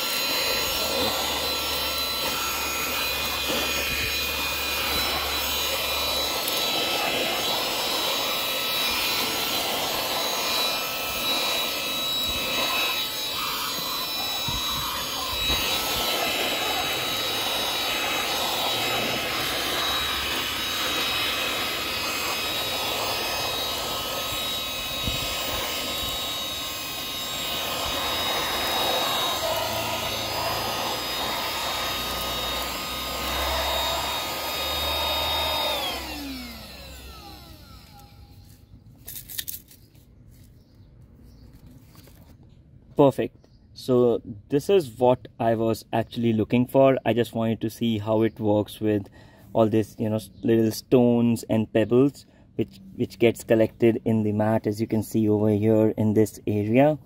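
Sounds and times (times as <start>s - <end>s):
handheld vacuum whine: 0.0s - 40.7s.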